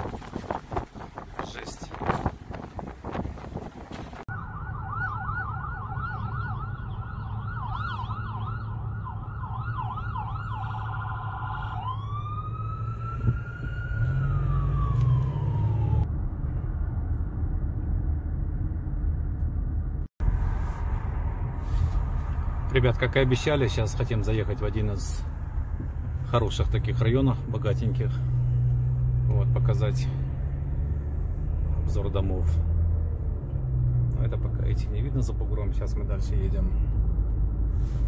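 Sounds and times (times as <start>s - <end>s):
car driving rumble: 0.0s - 38.0s
electronic siren yelp and wail: 4.3s - 16.1s.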